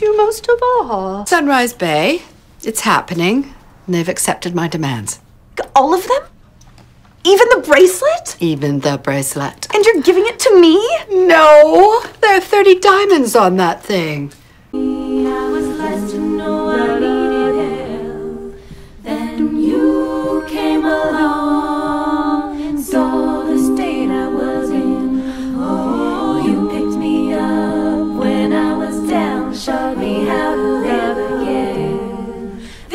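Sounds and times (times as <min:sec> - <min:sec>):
group singing a cappella: 0:14.7 - 0:32.9.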